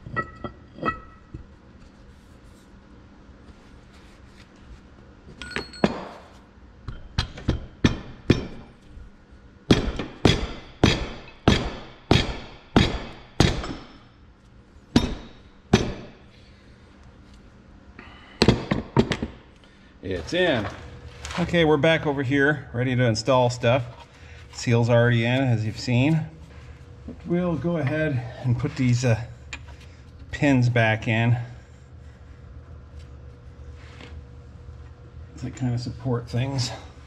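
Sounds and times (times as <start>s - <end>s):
hammer tapping metal: 6.9s - 8.7s, 9.7s - 14.1s, 14.9s - 16.2s.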